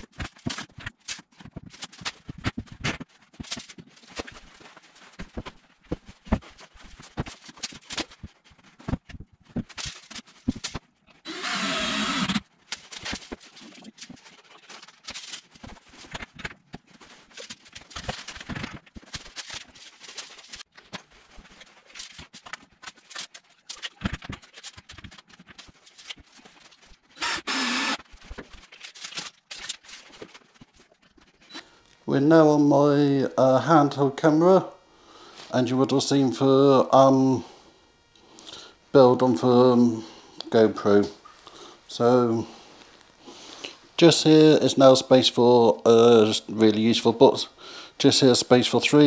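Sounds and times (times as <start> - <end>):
cordless drill driving screws: 11.3 - 12.4, 27.2 - 28.0.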